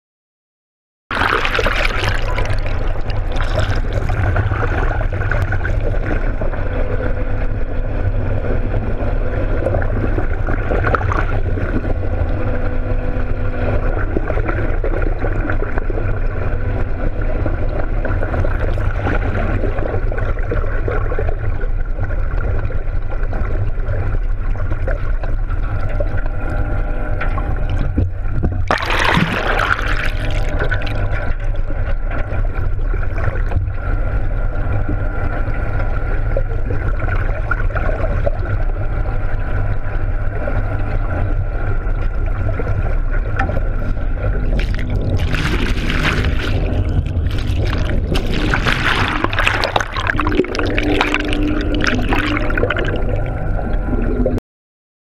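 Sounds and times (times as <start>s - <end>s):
bubbles splashing: 1.1s - 6.7s, 9.6s - 12.3s, 17.3s - 21.4s, 27.5s - 31.8s, 43.4s - 54.4s
underwater rush of water: 1.1s - 26.6s, 27.2s - 54.4s
faint boat hum: 1.1s - 54.4s.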